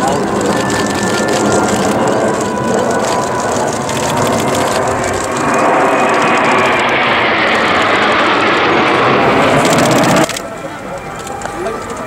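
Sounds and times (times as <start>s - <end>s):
jet aircraft roaring overhead: 0.0s - 12.0s.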